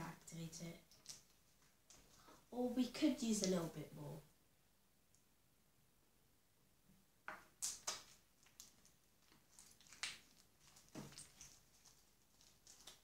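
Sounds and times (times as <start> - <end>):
slime clicking and crackling: 0.8 - 2.1, 7.6 - 13.0.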